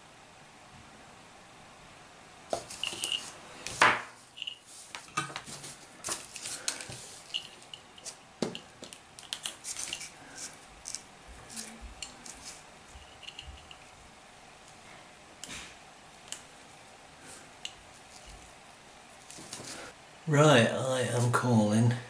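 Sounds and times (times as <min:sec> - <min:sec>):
metal parts clinking on wood: 0:13.1 - 0:13.9.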